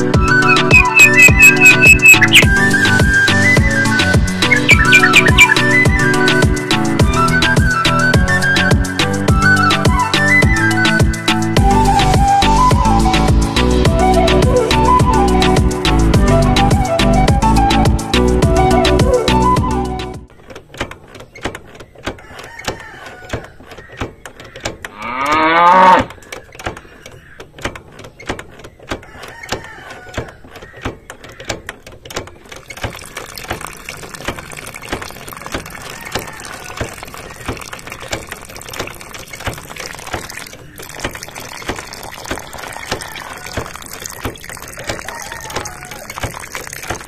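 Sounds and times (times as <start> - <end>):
hand pump handle clicking: 20.3 - 25.0, 26.1 - 35.8
water trickling into a cup: 32.6 - 47.0.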